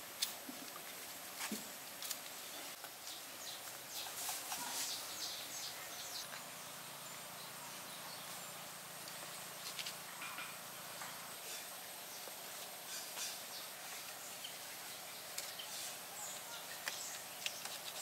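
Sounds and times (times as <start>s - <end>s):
wooden sticks clicking and scraping: 16.7s - 18.0s.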